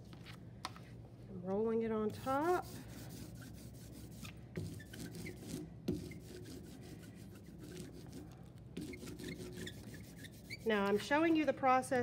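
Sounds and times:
ink roller sticky crackling: 7.7 - 11.7.

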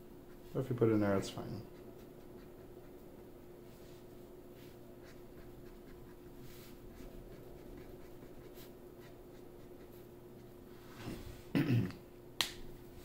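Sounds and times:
steady low hum: 0.0 - 13.0
marker drawing on paper: 4.6 - 10.0.

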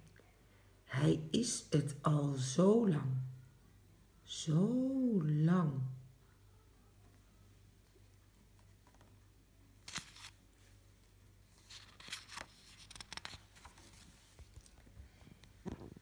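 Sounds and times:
low steady hum: 0.0 - 16.0
paper pages rustling: 8.1 - 10.8, 11.4 - 16.0.

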